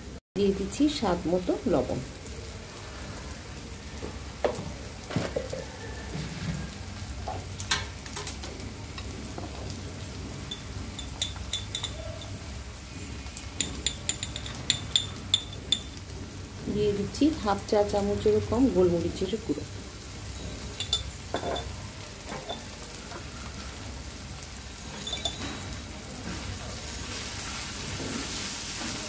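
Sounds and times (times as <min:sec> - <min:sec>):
vegetables sizzling in oil: 0:00.0 - 0:29.0
small metallic clinks: 0:10.4 - 0:12.4, 0:13.6 - 0:16.0, 0:20.4 - 0:23.3, 0:24.9 - 0:25.8.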